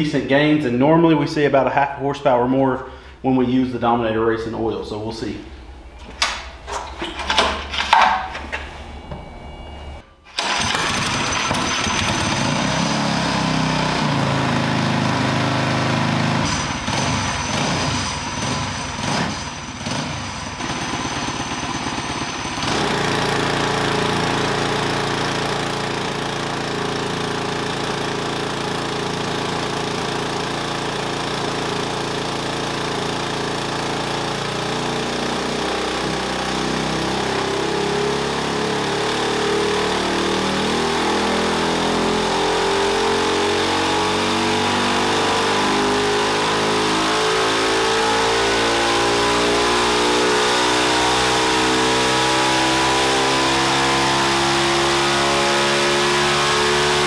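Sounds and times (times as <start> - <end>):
single-cylinder engine running: 5.9 - 57.0.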